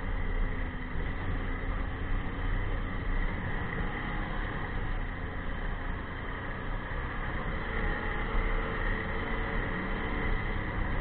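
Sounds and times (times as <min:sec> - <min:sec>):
constant rushing noise: 0:00.0 - 0:11.0
snowmobile engine drone: 0:00.0 - 0:11.0.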